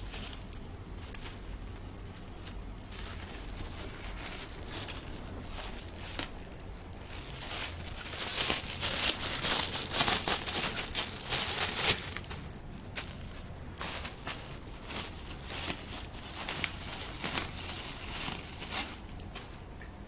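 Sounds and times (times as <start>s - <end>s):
plastic bag crinkling: 0.0s - 19.9s.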